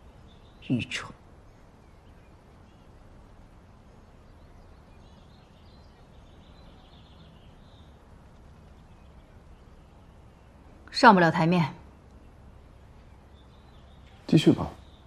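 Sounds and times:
low steady hum: 0.0 - 15.0
small birds chirping: 0.0 - 15.0.

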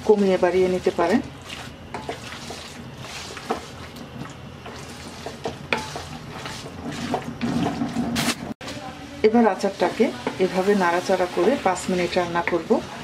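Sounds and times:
low sizzle: 0.0 - 13.0
spoon scraping metal pan: 4.6 - 8.3.

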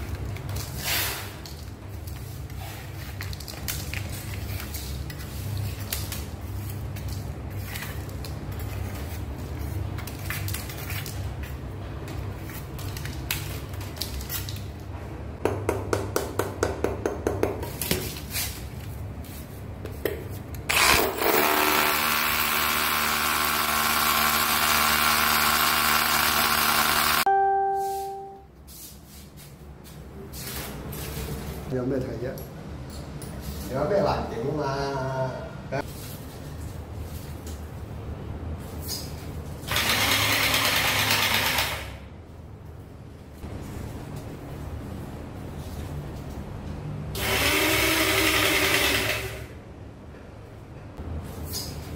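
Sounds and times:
hammer drill boring into concrete: 20.7 - 27.2, 39.7 - 41.9, 47.2 - 49.4.

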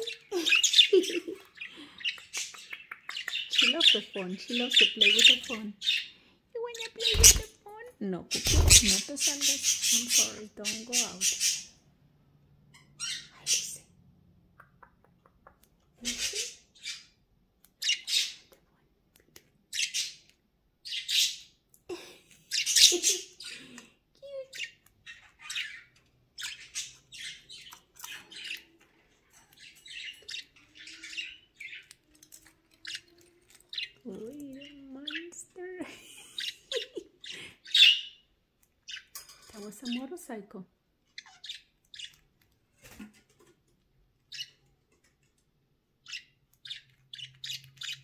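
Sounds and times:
budgerigars squawking and chirping: 0.0 - 7.5, 8.3 - 11.8, 12.7 - 13.8, 16.0 - 17.2, 17.8 - 18.6, 19.7 - 21.6, 22.5 - 23.8, 24.5 - 35.5, 36.2 - 39.2, 41.1 - 42.3, 44.3 - 44.6, 46.0 - 48.0.

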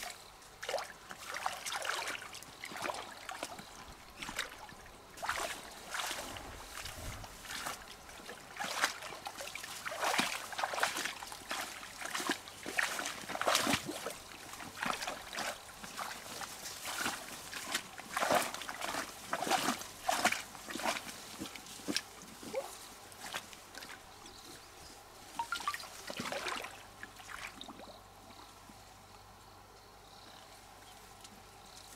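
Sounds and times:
water sloshing and splashing: 0.0 - 24.4, 25.2 - 28.0.

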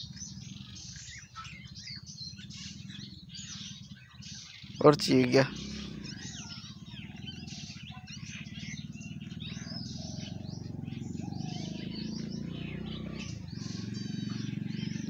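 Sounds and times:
fast bird trill: 0.0 - 15.0
small birds chirping: 0.0 - 15.0
steady low hum: 4.9 - 15.0.

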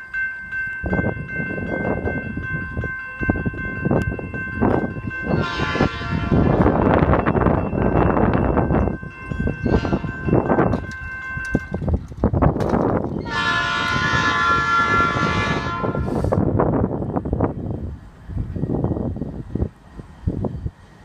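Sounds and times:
train horn blasts: 5.2 - 7.0, 9.6 - 10.2, 13.2 - 16.4.

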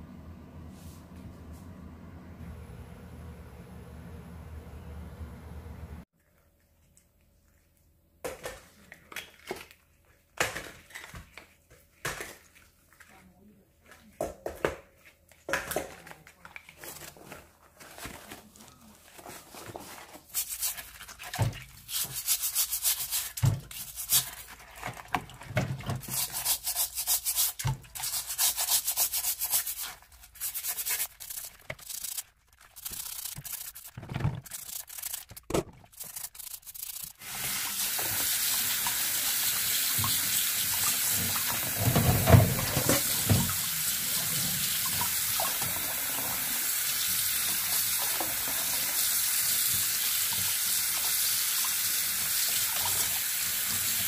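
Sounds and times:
brush scrubbing shells: 19.9 - 25.4, 26.0 - 40.2
tap running into sink: 37.4 - 43.7.

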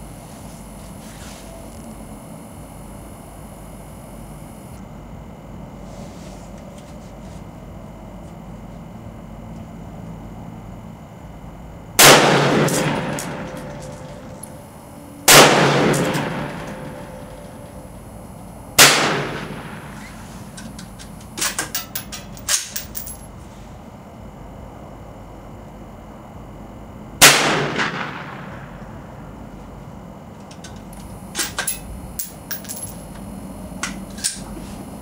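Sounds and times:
rifle shots with echo: 12.0 - 13.5, 15.2 - 17.1, 18.8 - 20.0, 27.2 - 28.7.

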